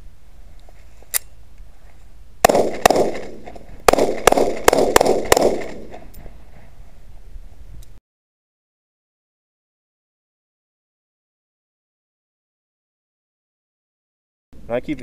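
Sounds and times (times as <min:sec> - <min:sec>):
pistol shots echoing: 0:02.4 - 0:06.1.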